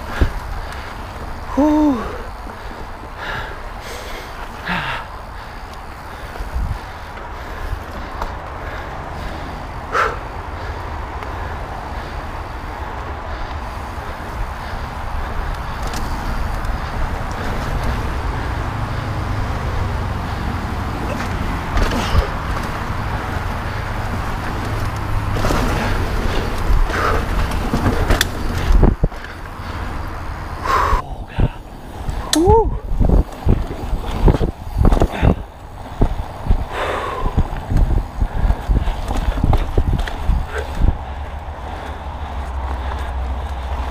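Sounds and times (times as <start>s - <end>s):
bike knocks and rattles: 0.0s - 3.1s, 13.7s - 30.0s, 31.9s - 43.9s
bike tyres rumbling on dirt: 0.0s - 43.9s
wind buffeting microphone: 0.0s - 43.9s.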